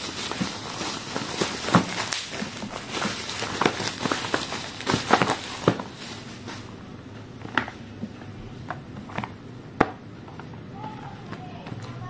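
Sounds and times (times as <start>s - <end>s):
cardboard boxes tapping: 0.0s - 6.1s.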